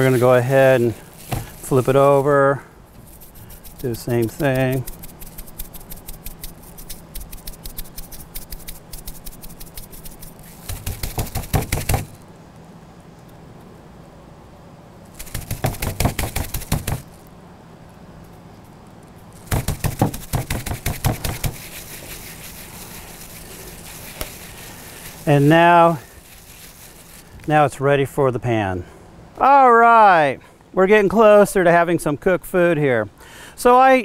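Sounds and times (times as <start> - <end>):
spice shakers rattling: 0.0 - 2.4, 3.0 - 12.2, 15.2 - 17.2, 19.4 - 27.3.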